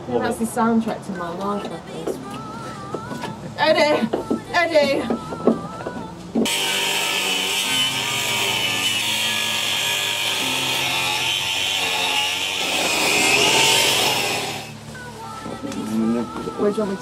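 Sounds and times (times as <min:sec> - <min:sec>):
power tool cutting: 0:06.4 - 0:14.8.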